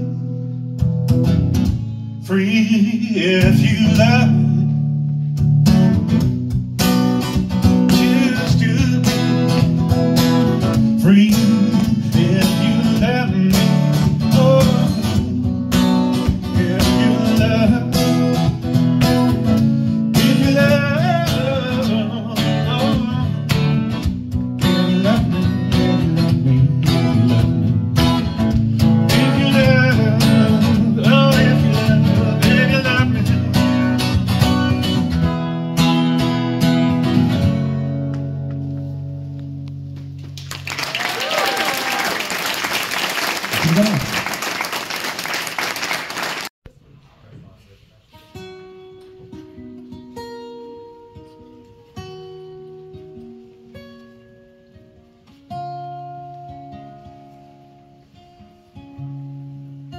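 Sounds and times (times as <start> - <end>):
acoustic guitar strumming: 0.0 - 40.4, 48.2 - 59.9
man singing: 2.2 - 4.8, 7.8 - 9.8, 10.7 - 15.4, 16.3 - 18.7, 20.0 - 24.0, 24.6 - 27.8, 28.8 - 34.2.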